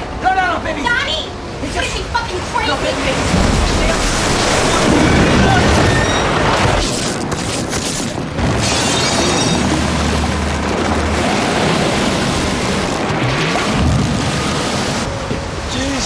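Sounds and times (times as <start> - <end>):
waves crashing: 0.0 - 16.0
seawater bursting in: 3.2 - 15.2.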